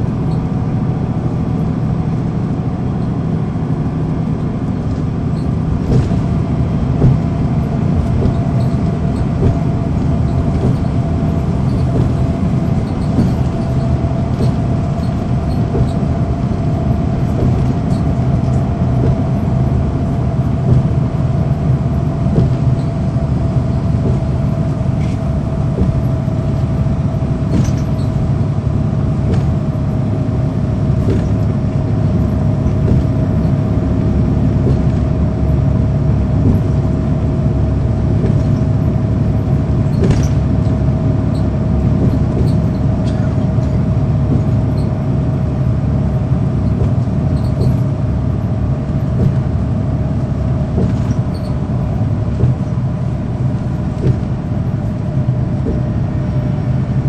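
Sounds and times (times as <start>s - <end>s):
bus diesel engine drone: 0.0s - 57.0s
light clicks and rattles: 4.4s - 28.6s.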